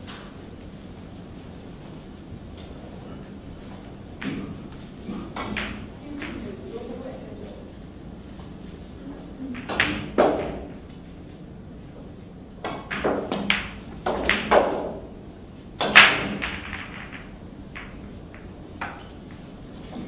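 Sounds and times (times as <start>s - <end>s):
billiard balls clacking: 2.6s - 6.7s, 9.5s - 20.0s
cue striking ball: 4.2s - 6.5s, 9.5s - 11.0s, 12.6s - 15.2s, 15.8s - 20.0s.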